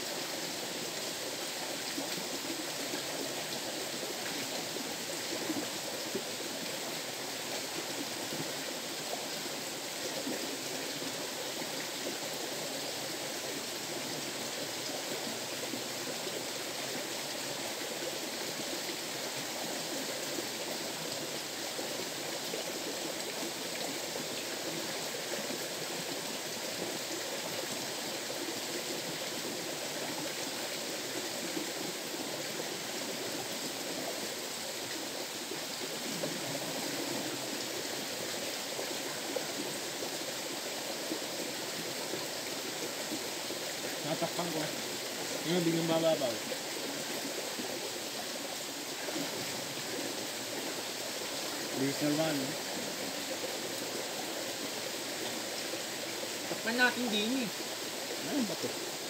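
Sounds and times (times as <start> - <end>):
river water rushing: 0.0 - 59.0.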